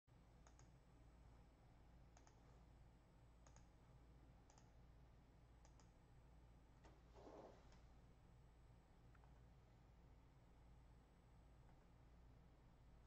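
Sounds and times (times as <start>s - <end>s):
low steady hum: 0.1s - 13.0s
computer mouse clicks: 0.4s - 0.8s, 2.1s - 2.4s, 3.4s - 3.8s, 4.4s - 4.8s, 5.6s - 6.0s.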